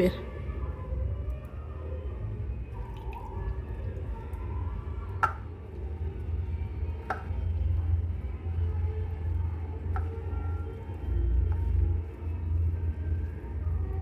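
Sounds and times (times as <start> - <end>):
hand kneading food in steel bowl: 9.1 - 14.0.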